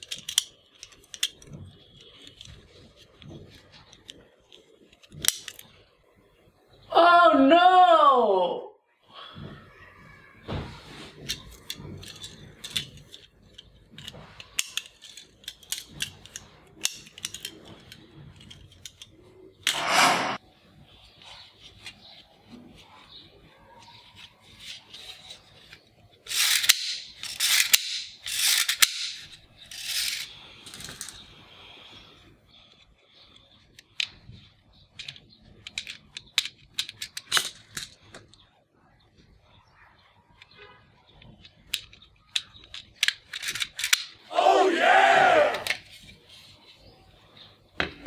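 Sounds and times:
plastic toy magazine clacking: 0.0s - 5.8s, 11.3s - 19.7s, 23.8s - 31.2s, 32.6s - 38.4s, 41.2s - 44.3s
toy handcuffs clicking and rattling: 0.0s - 5.9s, 11.2s - 19.7s, 23.8s - 31.3s, 32.6s - 38.4s, 41.2s - 44.2s.

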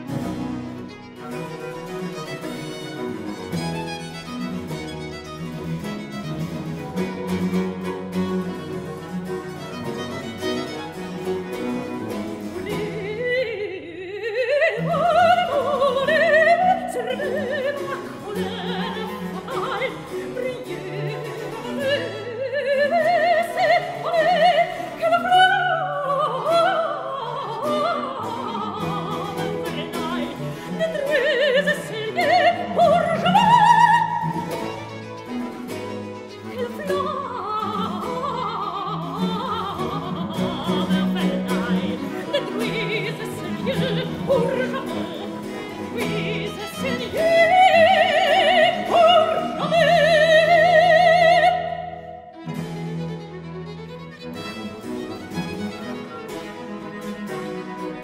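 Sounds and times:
baroque violin: 0.0s - 58.0s
soprano singing with vibrato: 11.6s - 35.0s, 36.3s - 52.4s.

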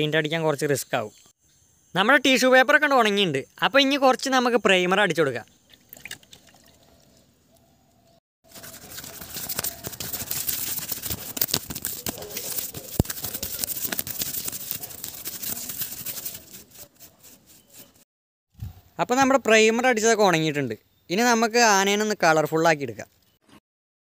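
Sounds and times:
paintbrush scrubbing on paper: 8.5s - 18.1s.

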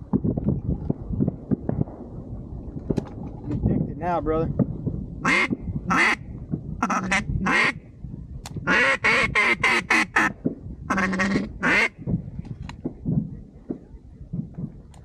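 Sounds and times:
duck quacking: 5.3s - 6.2s, 8.7s - 10.3s, 10.9s - 11.9s.

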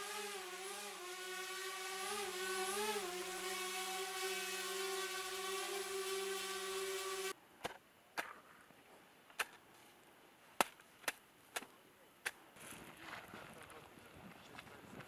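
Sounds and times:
drone propellers humming: 0.0s - 7.4s.

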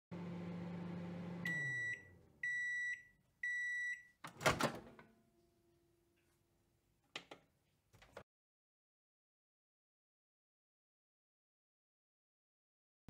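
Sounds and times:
microwave oven humming: 0.1s - 3.6s
high microwave beeps: 1.4s - 4.2s.

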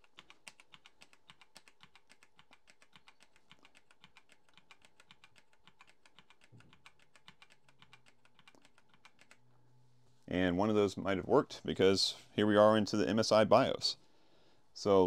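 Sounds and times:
keyboard keys tapping: 0.0s - 9.4s.

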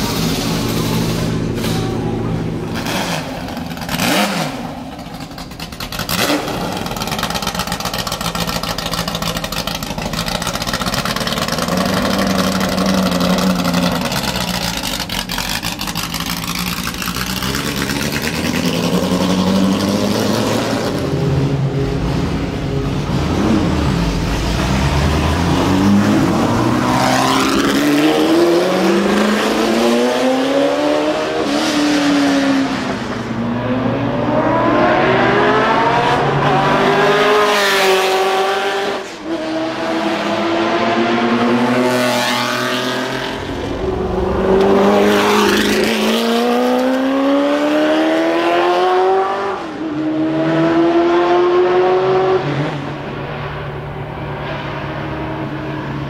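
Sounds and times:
car engine revving through gears: 2.7s - 4.9s, 11.4s - 21.7s, 22.4s - 53.0s.

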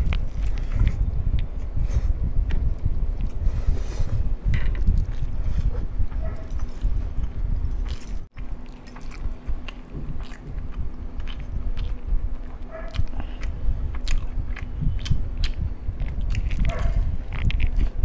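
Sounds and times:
person chewing food: 0.0s - 5.8s, 6.5s - 18.0s
wet mouth clicks: 12.9s - 18.0s.

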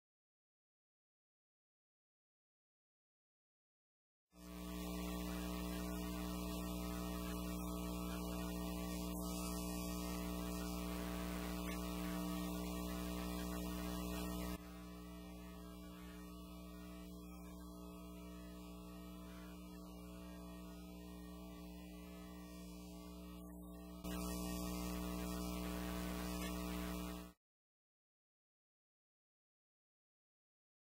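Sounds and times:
electrical mains hum: 4.4s - 27.4s.

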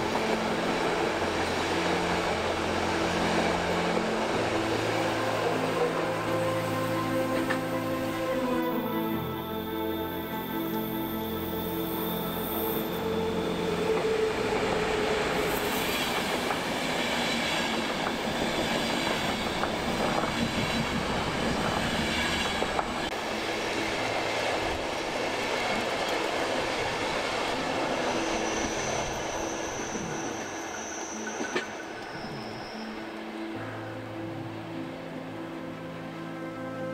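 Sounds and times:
high wheel squeal: 8.7s - 17.6s, 27.7s - 33.4s
train wheels rolling on rails: 12.5s - 33.4s
clickety-clack over rail joints: 30.3s - 32.5s.

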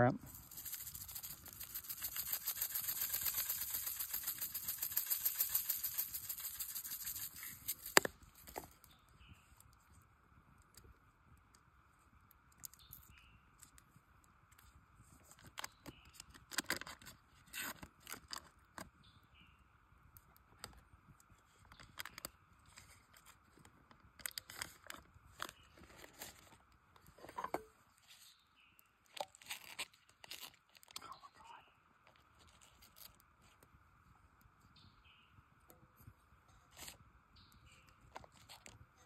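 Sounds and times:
steady low hiss: 0.0s - 15.3s.

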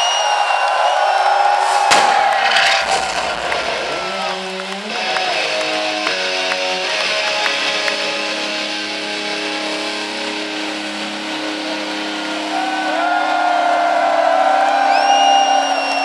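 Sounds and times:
distorted electric guitar chords: 3.1s - 12.9s.

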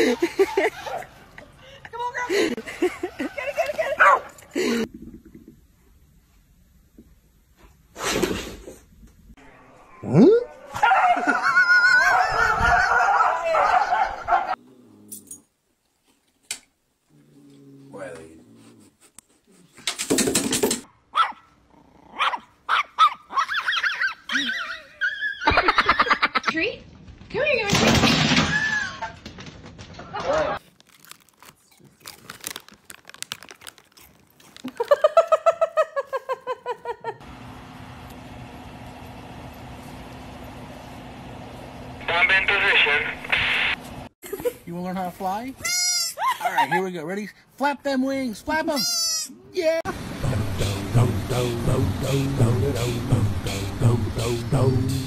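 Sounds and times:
dog barking rapidly: 4.0s - 4.3s, 12.1s - 14.6s, 21.1s - 21.5s, 22.2s - 24.2s.

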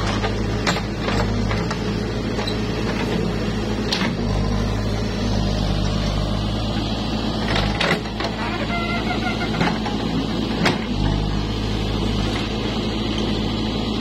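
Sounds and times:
diesel engine running under load: 0.0s - 14.0s
metal clanks from bucket linkage: 7.5s - 11.0s.

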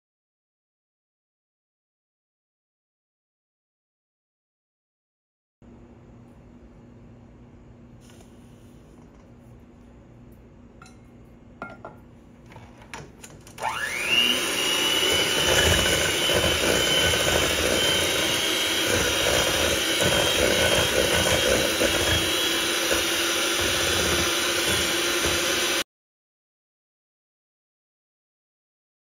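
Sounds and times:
mixer beaters in metal bowl: 13.5s - 25.8s
electric hand mixer whirring: 13.6s - 25.8s.

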